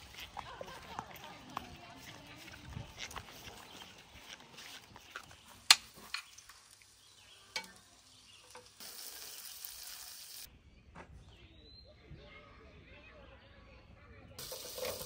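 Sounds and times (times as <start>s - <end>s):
butter sizzling in hot pan: 5.6s - 10.5s, 14.4s - 15.0s.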